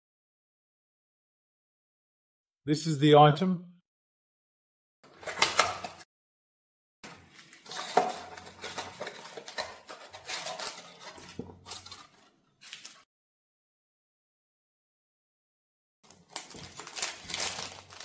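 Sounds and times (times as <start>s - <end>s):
cardboard and plastic rustling: 7.1s - 13.0s, 16.1s - 18.0s.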